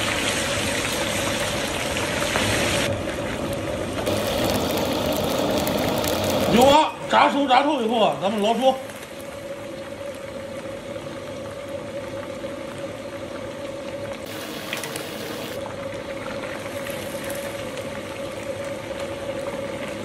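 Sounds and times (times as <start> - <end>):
oil bubbling and sizzling: 0.0 - 20.0
steady hum: 14.3 - 16.1.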